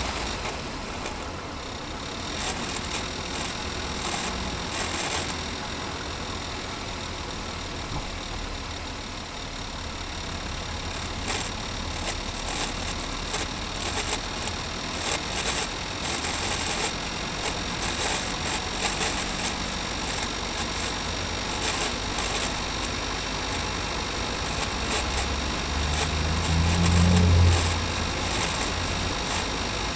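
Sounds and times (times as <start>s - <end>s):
gearbox low hum: 0.0s - 29.9s
metallic clicking and rattling: 10.9s - 29.7s.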